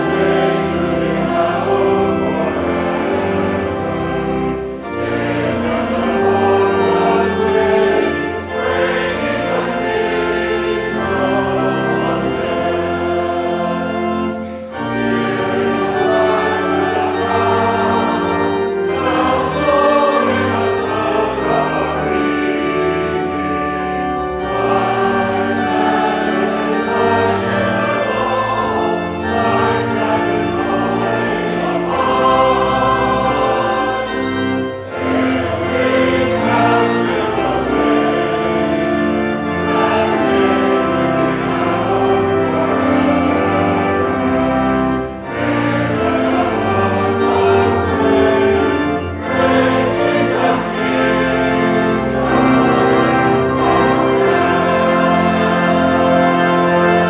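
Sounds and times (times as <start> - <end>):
church organ: 0.0 - 57.0
congregation singing a hymn: 0.0 - 57.0.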